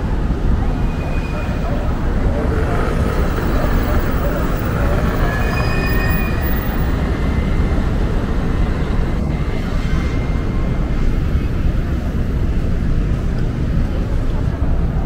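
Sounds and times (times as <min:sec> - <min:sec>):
faint streetcar whine: 0:00.0 - 0:15.0
street traffic rumble on wet roads: 0:00.0 - 0:15.0.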